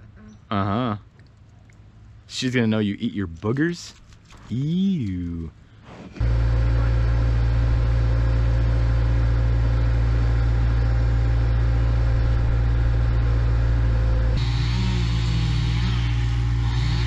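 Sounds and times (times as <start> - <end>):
loader engine running: 6.2 - 17.0.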